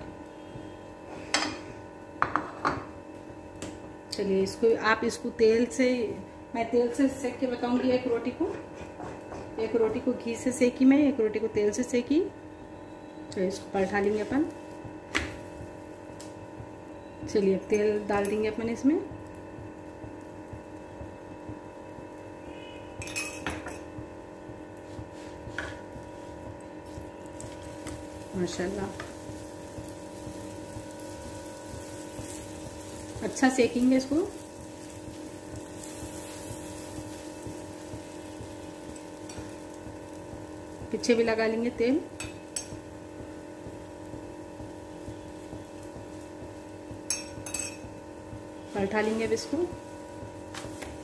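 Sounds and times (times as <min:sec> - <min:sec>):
steady hum: 0:00.0 - 0:51.0.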